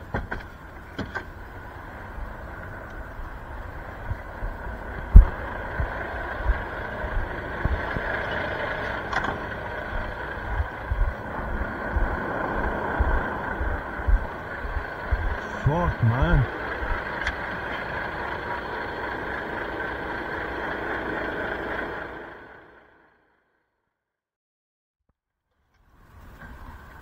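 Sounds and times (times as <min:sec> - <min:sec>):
wind and handling rumble: 0:00.0 - 0:15.4
truck idling: 0:00.0 - 0:23.2.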